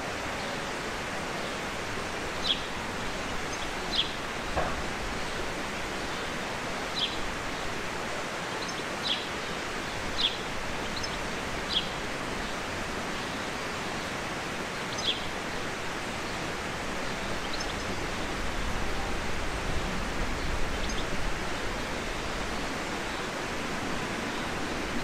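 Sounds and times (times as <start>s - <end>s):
outdoor ambience hiss: 0.0s - 25.0s
small birds chirping: 14.9s - 15.3s.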